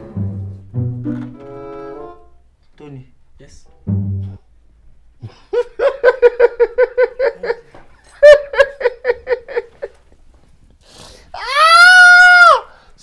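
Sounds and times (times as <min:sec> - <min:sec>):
man laughing loudly: 0:05.2 - 0:10.0.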